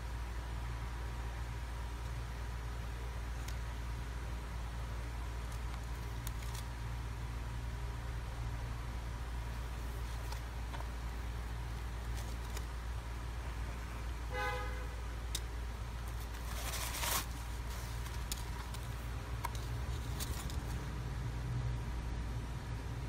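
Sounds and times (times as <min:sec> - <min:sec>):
paper rustling: 0:05.4 - 0:06.7, 0:09.8 - 0:11.0, 0:11.8 - 0:12.8, 0:15.4 - 0:20.9
horn-like toot: 0:14.3 - 0:15.0.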